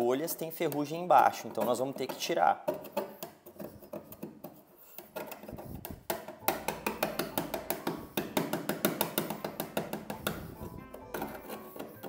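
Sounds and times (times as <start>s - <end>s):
putty knife scraping metal: 1.5s - 5.7s, 9.2s - 12.0s
background music with beat: 6.4s - 12.0s.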